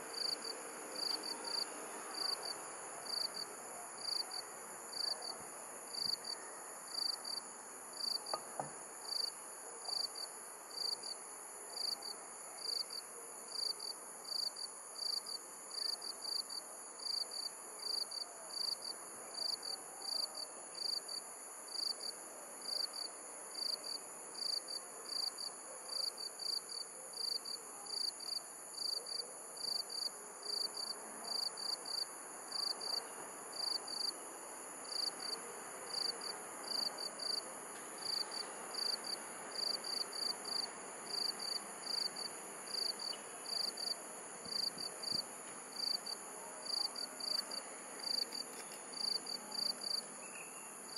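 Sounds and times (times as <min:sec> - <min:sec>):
insect chirping: 0:27.2 - 0:37.4, 0:38.0 - 0:50.9.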